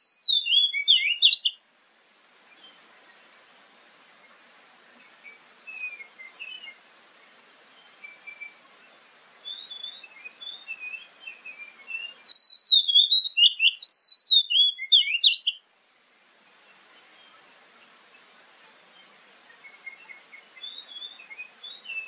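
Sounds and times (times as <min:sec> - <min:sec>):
bird singing whistles and chirps: 0:00.0 - 0:01.6, 0:05.2 - 0:06.8, 0:07.7 - 0:15.6, 0:18.9 - 0:22.0.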